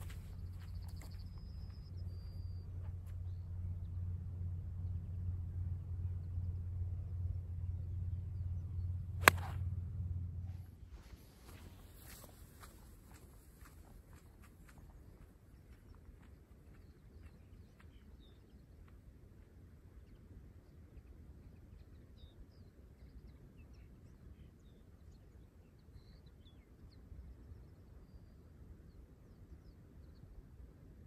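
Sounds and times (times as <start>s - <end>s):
low steady rumble: 0.0s - 23.5s.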